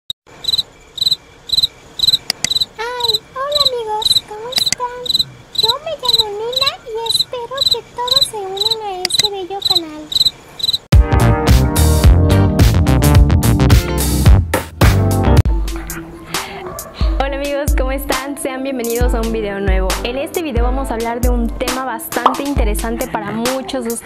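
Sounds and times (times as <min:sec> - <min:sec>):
cricket chirping: 0:00.3 - 0:10.9
loud music with a beat: 0:11.0 - 0:15.8.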